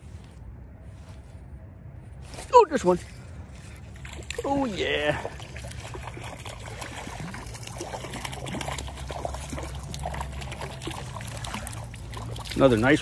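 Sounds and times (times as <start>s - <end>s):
trickling water: 2.6s - 13.0s
fish splashing in water: 3.6s - 13.0s.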